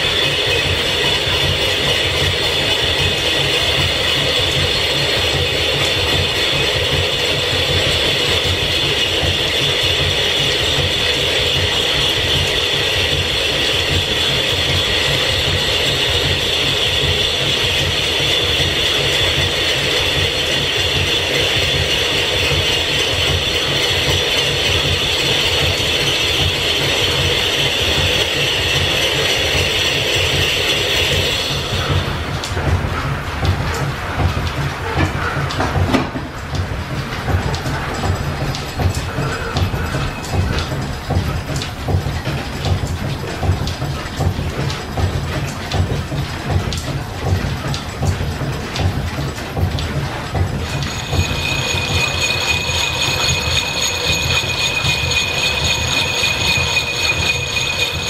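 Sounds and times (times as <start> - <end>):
clatter of gears and belts: 0.0 - 58.0
high machinery whine: 0.0 - 58.0.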